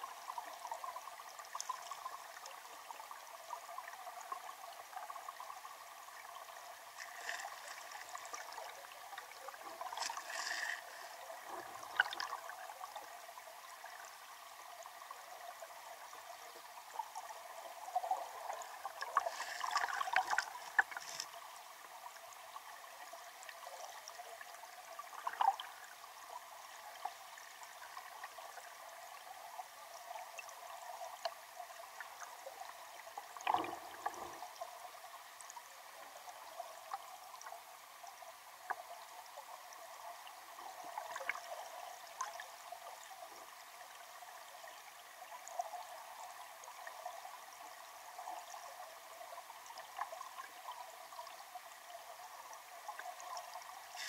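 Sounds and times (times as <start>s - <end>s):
underwater river rushing: 0.2s - 26.2s, 32.9s - 35.1s.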